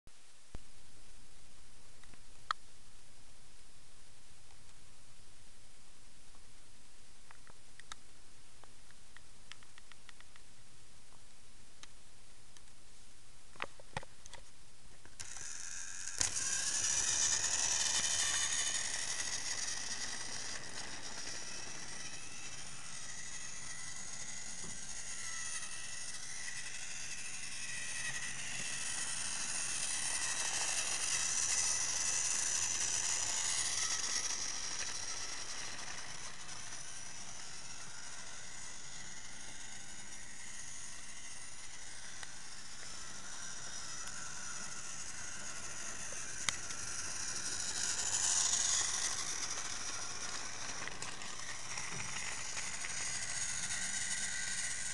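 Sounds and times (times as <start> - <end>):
toy train motor whirring: 15.1 - 54.9.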